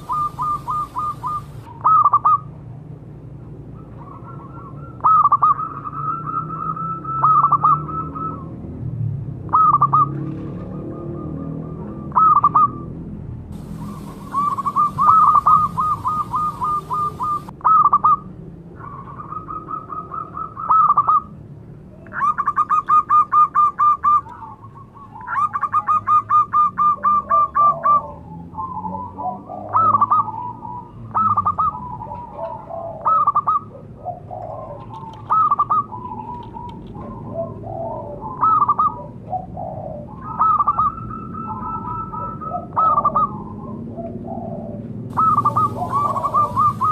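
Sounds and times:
dove cooing: 0.0s - 2.5s, 13.6s - 18.2s, 22.1s - 46.9s.

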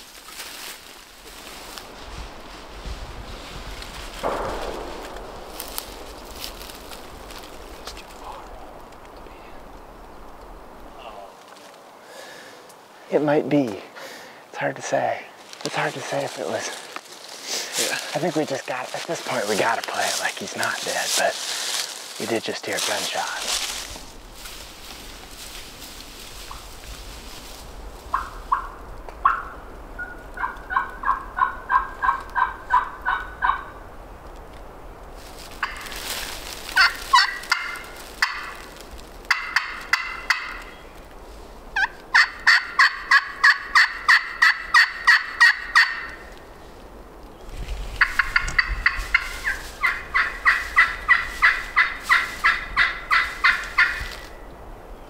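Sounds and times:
turkey yelping: 28.1s - 33.8s, 35.6s - 35.9s, 36.8s - 38.6s, 39.3s - 40.8s, 41.8s - 46.2s, 48.0s - 54.1s.

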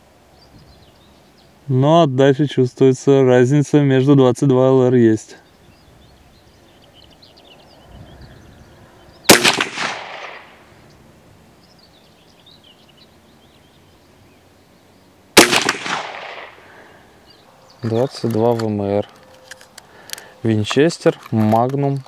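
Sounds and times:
faint birdsong: 0.0s - 22.0s
rifle shots with echo: 9.3s - 10.7s, 15.4s - 16.8s.

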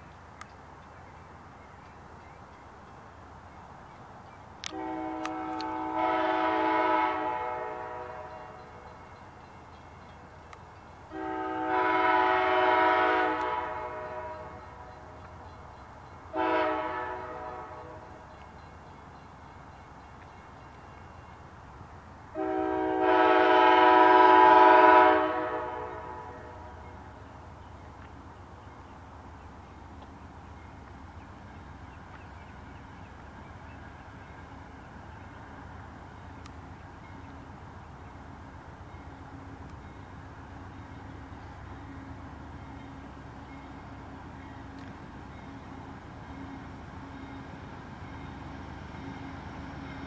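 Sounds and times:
train horn blasts: 4.6s - 9.0s, 11.1s - 15.2s, 16.3s - 18.2s, 22.3s - 27.0s.

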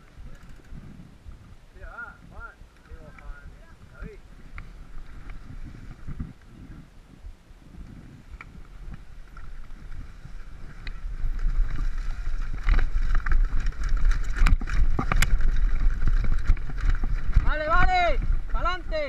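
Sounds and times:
bike rattling and clacking: 0.0s - 1.0s, 8.4s - 19.0s
wind rumbling on microphone: 0.0s - 19.0s.

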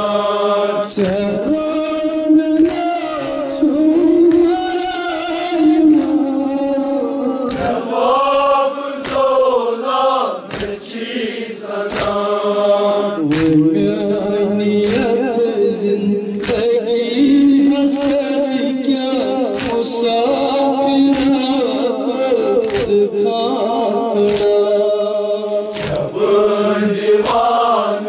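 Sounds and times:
men chanting a lament: 0.0s - 28.0s
hands slapping chests: 2.6s - 3.1s, 4.2s - 6.2s, 7.4s - 8.4s, 9.0s - 9.5s, 10.4s - 11.0s, 11.8s - 12.4s, 13.2s - 13.7s, 14.8s - 15.2s, 16.4s - 16.7s, 19.2s - 21.8s, 22.6s - 23.1s, 24.2s - 24.8s, 25.7s - 26.4s, 27.0s - 27.5s.

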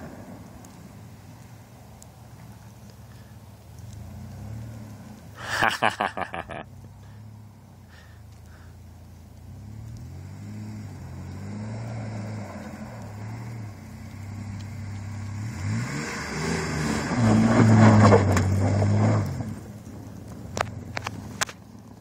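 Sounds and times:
tyres spinning in snow: 0.0s - 22.0s
truck engine revving: 9.3s - 19.7s.

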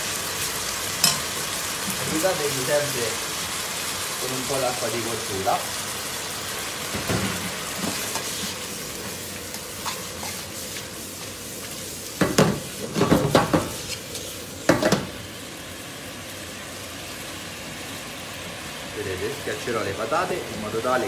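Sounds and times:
food sizzling in a frying pan: 0.0s - 21.0s
metal fork clattering on pan: 1.0s - 1.2s.

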